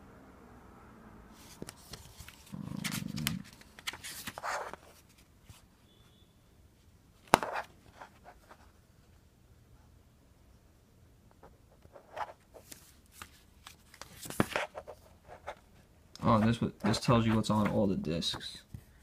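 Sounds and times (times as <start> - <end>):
pages rustling: 1.4 - 5.6, 11.8 - 19.0.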